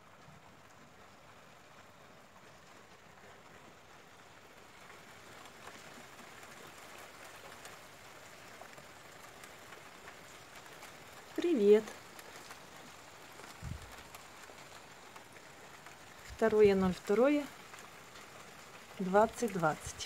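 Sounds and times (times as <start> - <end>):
faint rain falling: 0.0 - 20.0
rain drop taps: 4.9 - 20.0.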